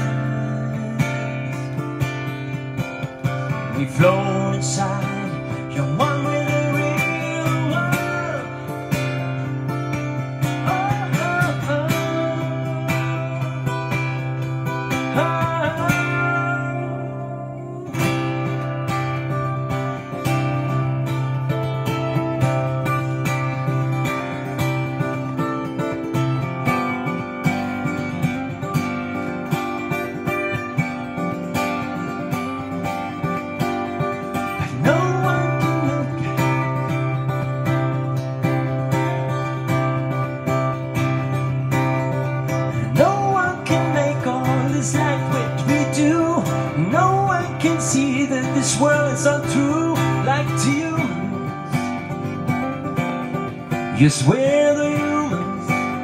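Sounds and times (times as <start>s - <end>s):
man singing: 0.0s - 19.1s, 34.0s - 37.8s, 42.5s - 52.6s, 53.7s - 56.0s
strummed acoustic guitar: 0.0s - 56.0s.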